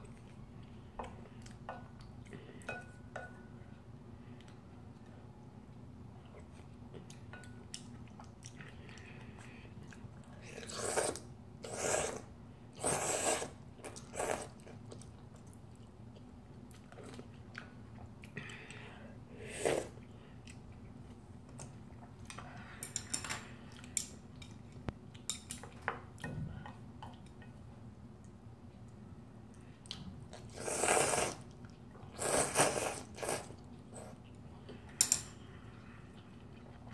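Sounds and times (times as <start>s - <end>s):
person slurping noodles: 10.6s - 12.2s, 12.8s - 13.6s, 19.4s - 20.0s, 30.4s - 31.4s, 32.2s - 34.1s.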